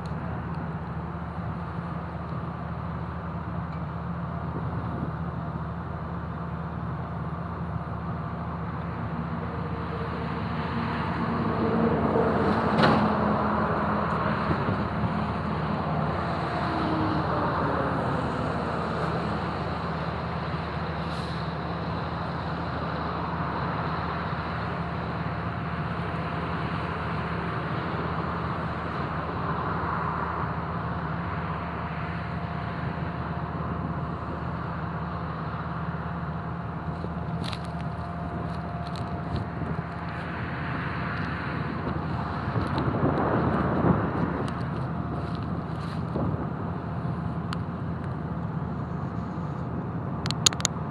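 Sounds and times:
excavation machinery engine drone: 0.0s - 50.9s
sharp click: 50.2s - 50.8s.

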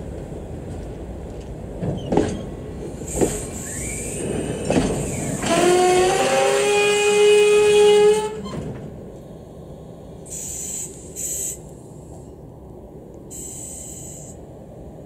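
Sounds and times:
short hisses: 3.0s - 5.4s, 10.3s - 12.2s, 13.3s - 14.4s
locomotive horn: 5.4s - 8.8s.

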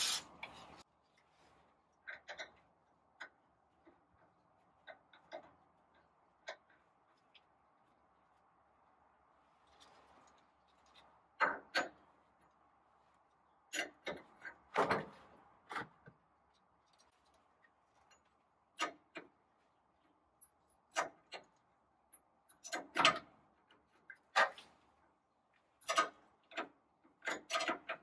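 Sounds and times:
tools clicking and knocking: 25.8s - 28.0s.

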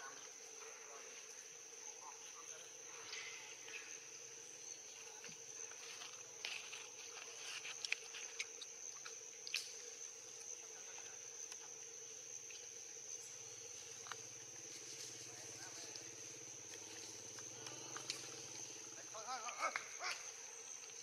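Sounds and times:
insects chirring: 0.0s - 21.0s
small clicks and rustles: 5.2s - 9.8s.

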